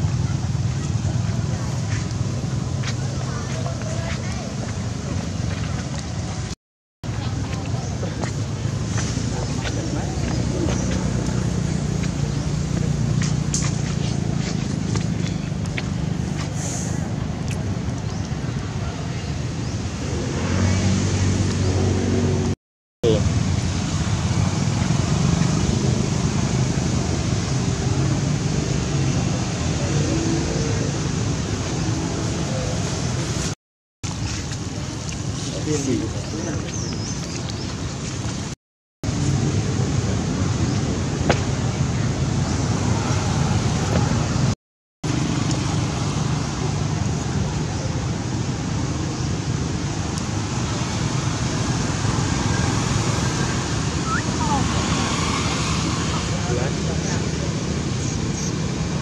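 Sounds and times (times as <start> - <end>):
faint engine hum: 0.0 - 33.4
outdoor rumble and hiss: 0.0 - 59.0.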